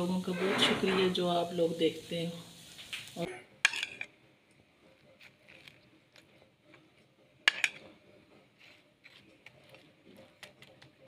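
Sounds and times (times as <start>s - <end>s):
spoon spreading sauce: 3.7s - 11.0s.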